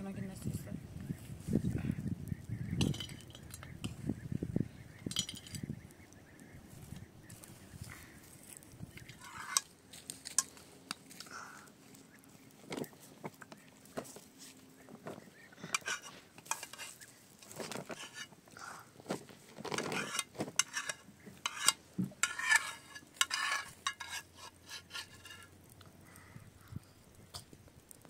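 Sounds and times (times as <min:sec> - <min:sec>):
metal cookware clinking and scraping: 0:02.8 - 0:04.0, 0:05.0 - 0:05.7, 0:09.1 - 0:10.6, 0:15.7 - 0:17.0, 0:17.7 - 0:18.3, 0:19.7 - 0:25.5.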